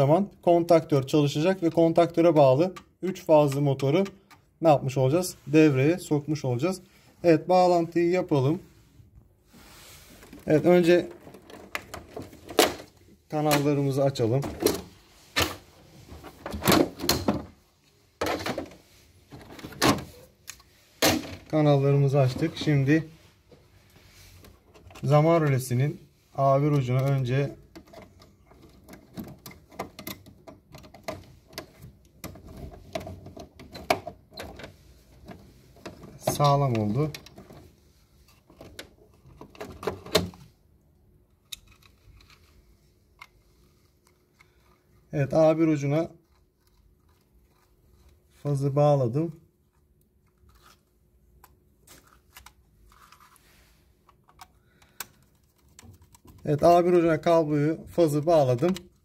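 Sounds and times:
small clicks and rustles: 49.4 - 56.8.

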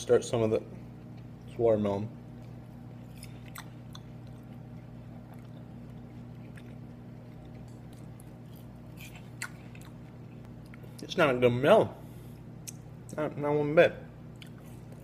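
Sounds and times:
steady low hum: 0.0 - 15.0
person chewing watermelon: 2.3 - 11.0, 14.3 - 15.0.

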